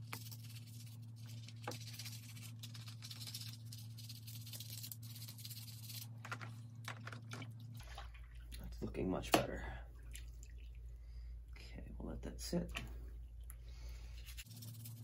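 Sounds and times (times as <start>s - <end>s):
water splashes and drips: 6.8s - 11.2s.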